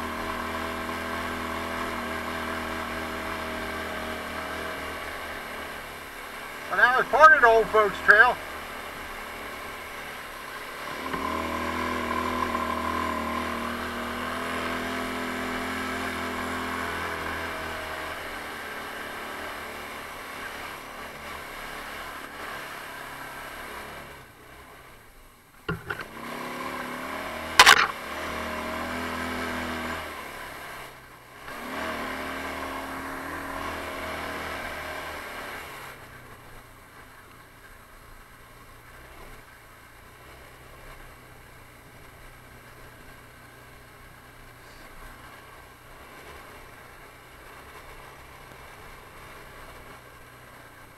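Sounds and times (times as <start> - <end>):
atv engine revving: 0.0 - 24.8, 25.7 - 36.9, 38.9 - 50.9
sharp knock: 27.6 - 28.0.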